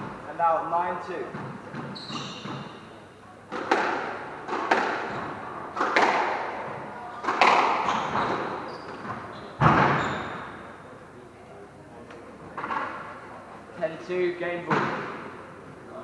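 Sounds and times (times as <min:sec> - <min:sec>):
squash ball hits echoing: 0:03.5 - 0:10.7.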